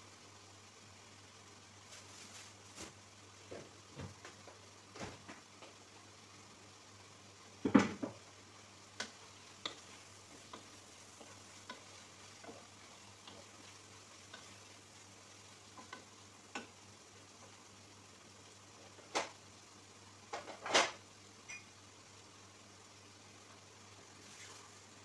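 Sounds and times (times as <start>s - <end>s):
faint frying sizzle: 0.0s - 25.0s
wooden spoon stirring in a pan: 1.5s - 19.5s.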